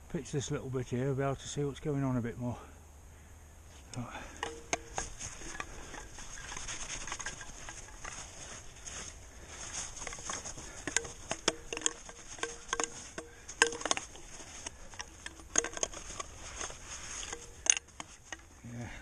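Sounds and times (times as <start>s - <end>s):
scrapes and clicks on rock: 3.8s - 18.5s
gloved hands brushing snow: 6.1s - 10.6s.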